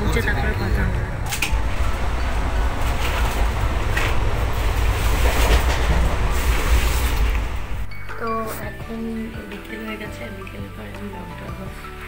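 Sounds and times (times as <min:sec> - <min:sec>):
train rumble and wheel noise: 0:00.0 - 0:11.9
wheels clacking over rail joints: 0:01.3 - 0:07.9.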